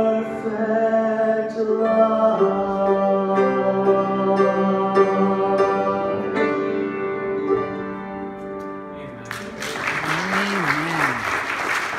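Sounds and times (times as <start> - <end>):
crowd applause: 9.2 - 11.9.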